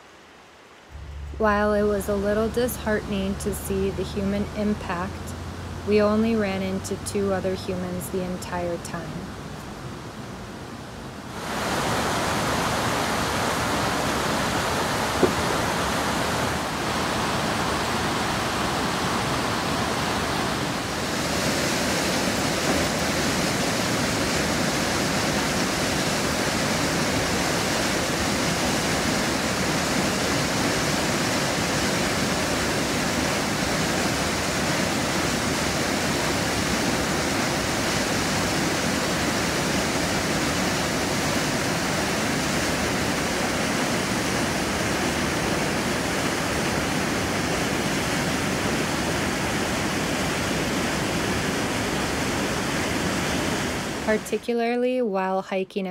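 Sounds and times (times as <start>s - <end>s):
water rushing over rocks: 11.2s - 54.2s.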